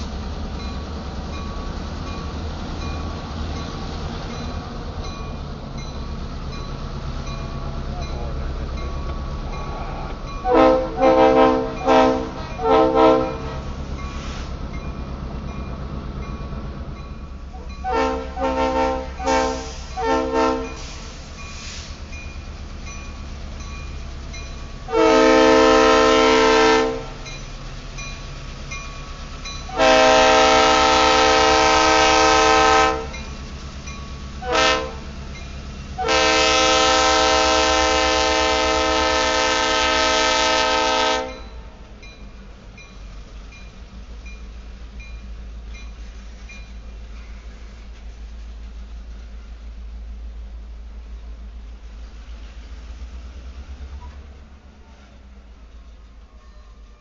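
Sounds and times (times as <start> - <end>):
freight train rumbling and clattering: 0.0 - 57.0
diesel locomotive horn: 9.8 - 14.5, 17.6 - 21.8, 24.9 - 27.3, 29.6 - 33.3, 34.4 - 35.2, 35.9 - 41.8.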